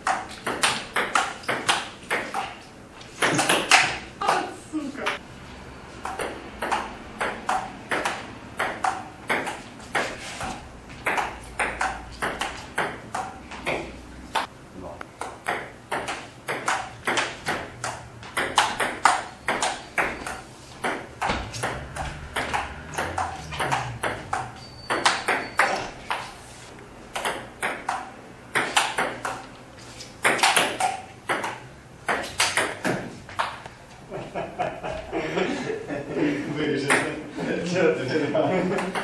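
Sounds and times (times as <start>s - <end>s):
table tennis ball clicking: 6.0s - 10.1s, 11.0s - 13.4s, 15.2s - 25.5s, 27.1s - 29.5s, 30.2s - 33.7s.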